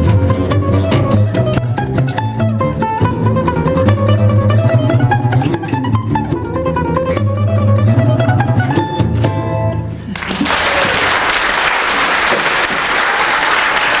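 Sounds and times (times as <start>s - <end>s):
balalaikas playing: 0.0s - 10.4s
audience applause: 10.1s - 14.0s.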